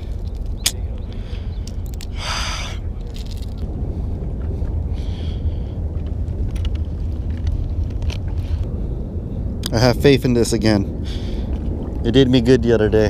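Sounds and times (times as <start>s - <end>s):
wind rumble on microphone: 0.0s - 13.0s.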